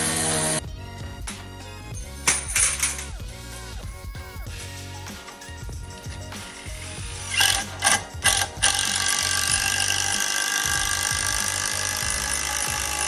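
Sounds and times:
motor-driven tool running: 0.0 - 0.6, 7.1 - 13.0.

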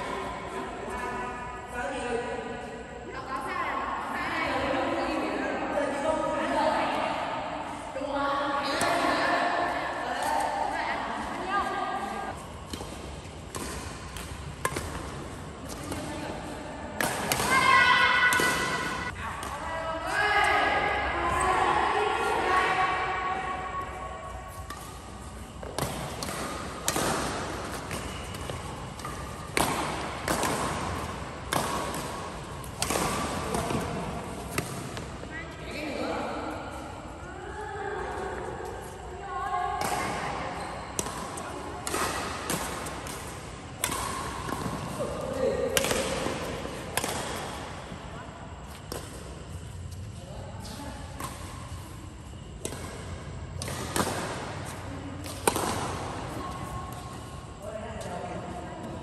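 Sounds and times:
rackets hitting shuttlecock: 8.6 - 9.4, 12.3 - 19.7, 24.4 - 35.3, 39.8 - 47.9, 50.6 - 57.3.

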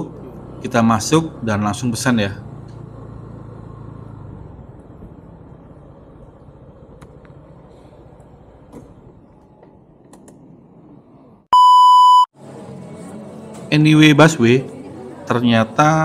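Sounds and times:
high electronic beep: 11.5 - 12.3.

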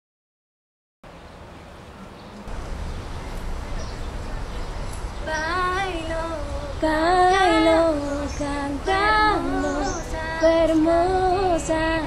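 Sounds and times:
girl singing unaccompanied: 5.2 - 12.0.

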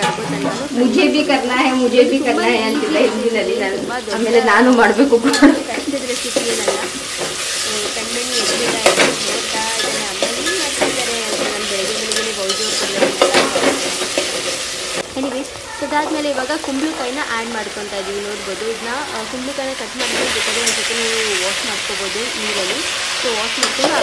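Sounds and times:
vegetables sizzling in hot oil: 0.0 - 24.0
ladle scraping and knocking pot: 5.2 - 15.0.

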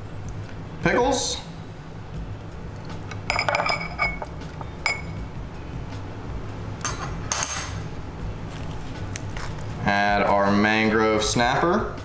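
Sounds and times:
glass clinking: 3.1 - 5.2, 6.8 - 7.9.

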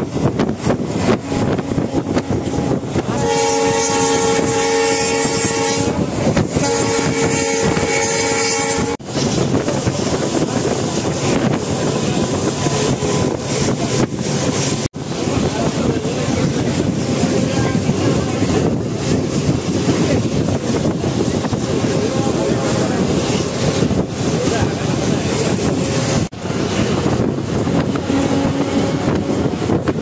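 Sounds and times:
moving train rumble: 0.0 - 30.0
wind: 0.0 - 30.0
train horn blasts: 1.1 - 9.1, 27.6 - 29.6.

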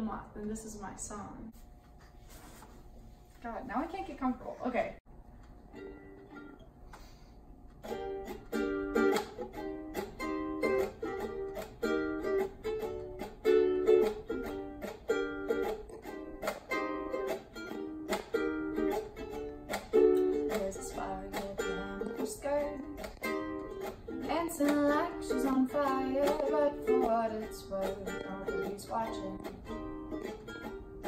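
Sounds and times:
ukulele strumming: 5.6 - 6.7, 7.8 - 31.0.

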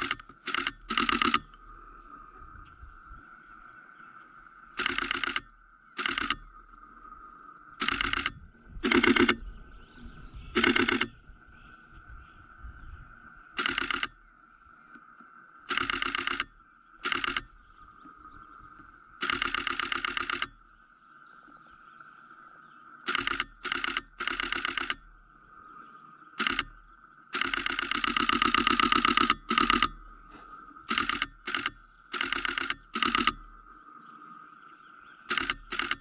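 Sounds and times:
camera shutter rapid bursts: 0.0 - 1.5, 4.8 - 6.4, 7.8 - 9.4, 10.6 - 11.1, 13.6 - 14.2, 15.7 - 17.5, 19.2 - 20.6, 23.1 - 25.0, 26.4 - 26.8, 27.4 - 30.0, 30.9 - 33.5, 35.3 - 36.0.

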